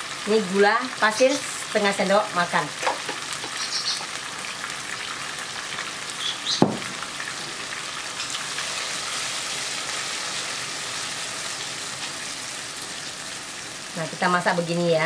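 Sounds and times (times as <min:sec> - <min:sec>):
paste sizzling in hot oil: 0:00.0 - 0:14.8
sharp knock: 0:06.6 - 0:07.0.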